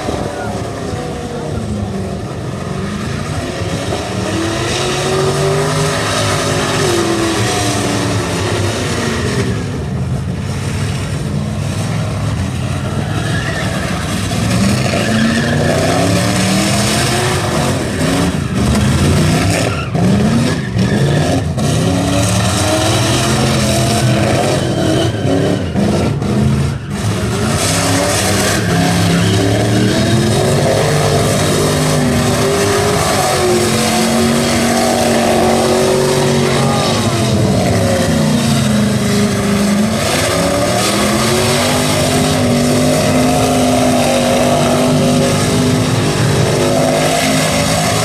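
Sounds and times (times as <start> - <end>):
engine revving: 0.0 - 9.9, 13.6 - 48.0
tyres squealing: 12.8 - 48.0.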